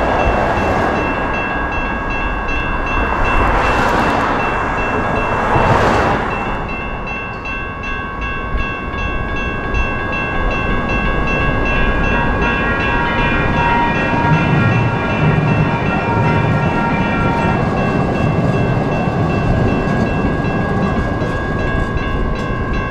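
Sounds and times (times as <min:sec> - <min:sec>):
crossing bell ringing: 0:00.0 - 0:22.9
train rumbling: 0:00.0 - 0:22.9.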